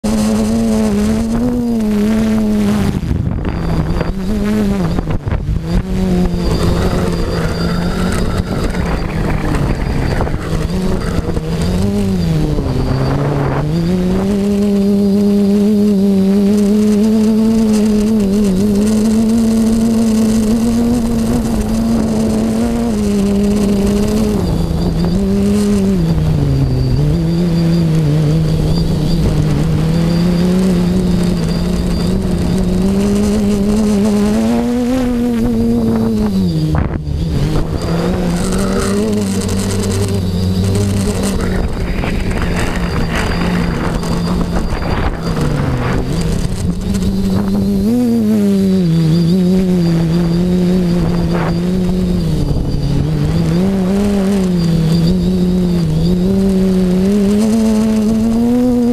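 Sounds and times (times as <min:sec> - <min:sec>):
drone motors buzzing: 0:00.0 - 0:58.9
wind on microphone: 0:00.0 - 0:58.9.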